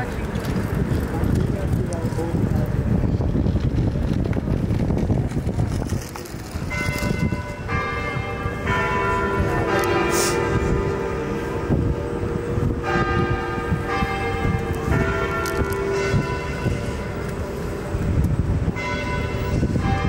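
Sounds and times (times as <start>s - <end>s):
bells ringing: 6.6s - 20.0s.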